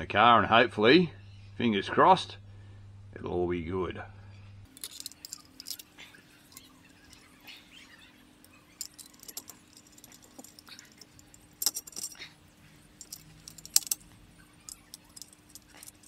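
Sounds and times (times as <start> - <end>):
low steady hum: 0.0 - 16.0
metallic clinks of hand tool: 4.7 - 7.3, 8.4 - 16.0.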